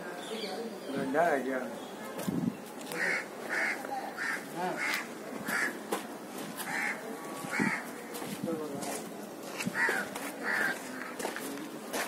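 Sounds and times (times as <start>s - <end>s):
crow cawing: 2.9s - 5.8s, 6.6s - 7.9s, 9.7s - 11.2s.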